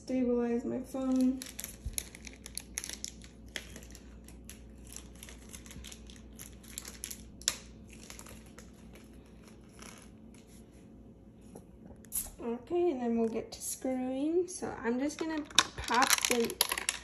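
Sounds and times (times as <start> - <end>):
plastic crinkling: 1.0 - 10.6, 15.2 - 17.0.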